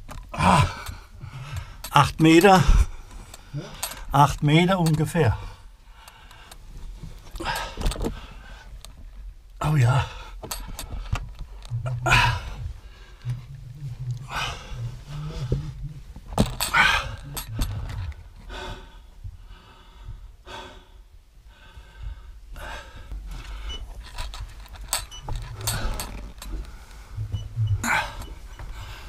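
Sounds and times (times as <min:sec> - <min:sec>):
person breathing hard: 0:00.4 - 0:01.9, 0:07.3 - 0:08.8, 0:10.0 - 0:29.0
low rumbling handling noise: 0:06.5 - 0:20.4, 0:21.8 - 0:29.0.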